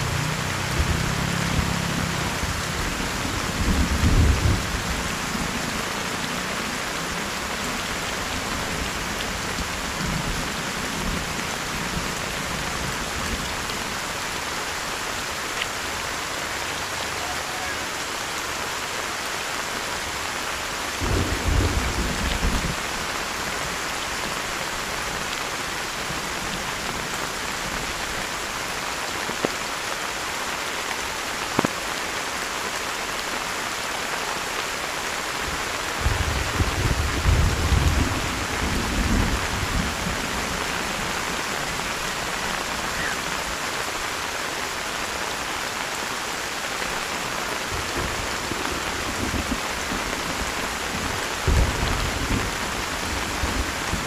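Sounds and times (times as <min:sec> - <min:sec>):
heavy rain: 0:00.0 - 0:54.0
low thunder rumbles: 0:00.1 - 0:05.6, 0:21.0 - 0:22.9, 0:36.0 - 0:40.6, 0:47.7 - 0:54.0.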